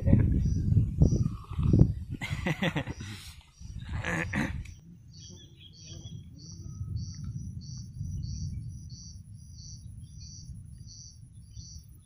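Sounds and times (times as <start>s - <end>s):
crickets chirping: 0.0s - 12.0s
low rumble: 4.8s - 11.7s.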